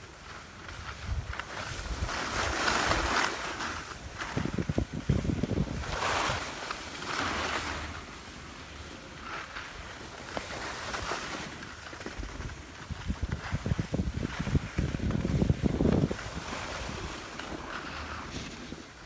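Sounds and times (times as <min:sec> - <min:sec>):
skis hissing over packed snow: 0:00.0 - 0:19.0
wind buffeting microphone: 0:04.0 - 0:06.5, 0:12.2 - 0:17.3.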